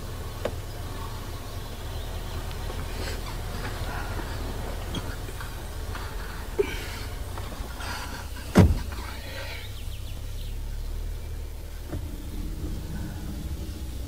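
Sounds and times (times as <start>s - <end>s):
car engine running: 0.0s - 14.0s
shuffling: 0.9s - 10.2s
car door shutting: 2.4s - 9.4s, 11.8s - 13.2s.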